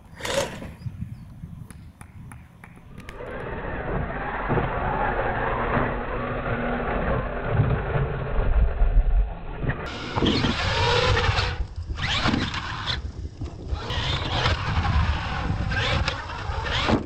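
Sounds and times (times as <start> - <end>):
toy truck motors whining: 9.9 - 17.0.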